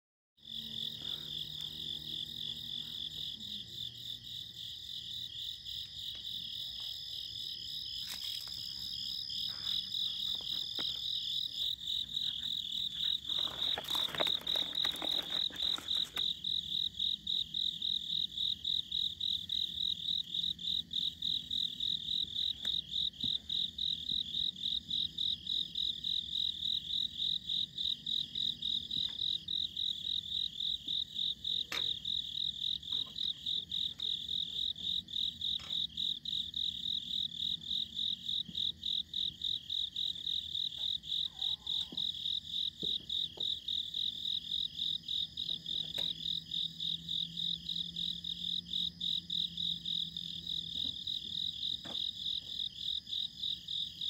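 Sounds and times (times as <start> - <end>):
brief rustling: 13.0 - 16.3.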